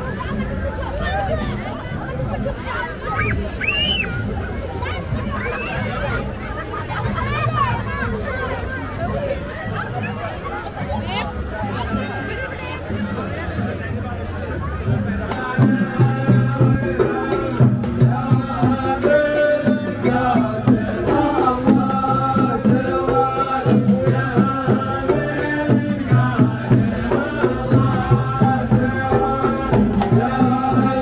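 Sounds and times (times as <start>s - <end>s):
large drums beating: 12.8s - 31.0s
men chanting in unison: 15.0s - 31.0s.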